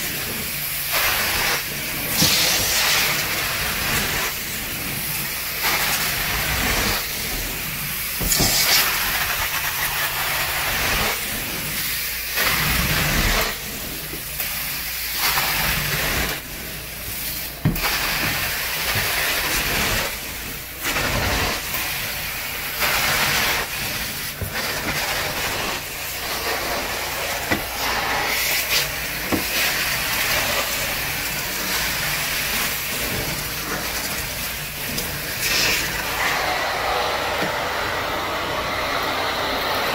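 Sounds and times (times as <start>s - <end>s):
carpet extractor spray and suction: 0.0s - 39.9s.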